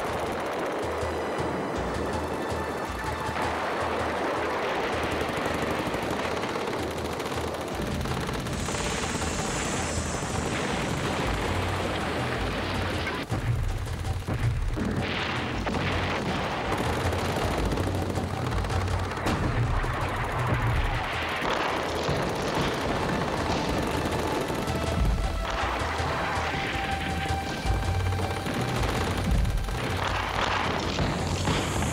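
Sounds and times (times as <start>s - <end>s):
gunfire: 0.0s - 31.9s
explosions: 8.5s - 18.1s, 19.1s - 23.9s, 28.5s - 31.9s.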